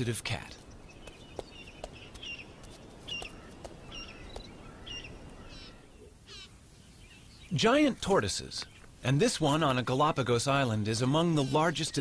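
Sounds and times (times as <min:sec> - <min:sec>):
birds chirping: 0:00.0 - 0:12.0
bird trilled calls: 0:00.5 - 0:06.5.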